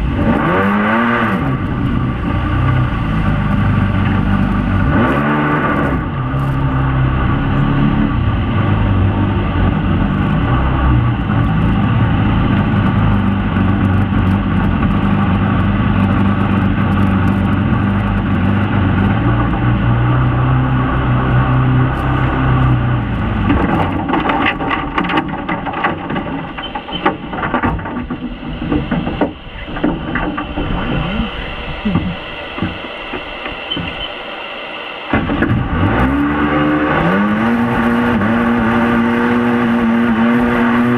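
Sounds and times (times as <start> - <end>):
jet boat engine drone: 0.0 - 40.9
irregular knocks: 23.5 - 30.8.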